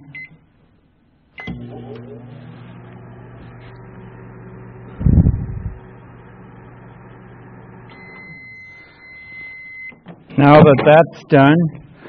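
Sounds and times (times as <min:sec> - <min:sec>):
microwave long beep: 0:01.4 - 0:10.0
microwave oven humming: 0:01.4 - 0:10.1.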